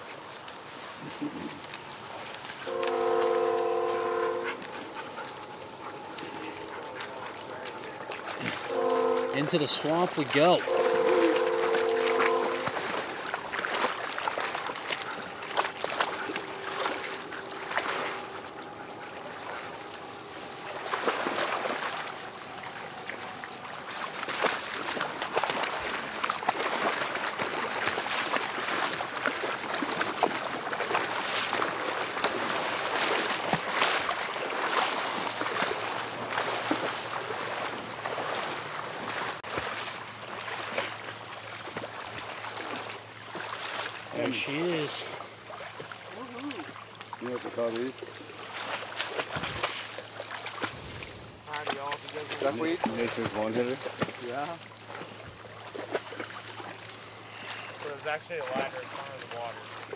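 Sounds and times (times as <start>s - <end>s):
boots sloshing in water and mud: 0.0s - 59.9s.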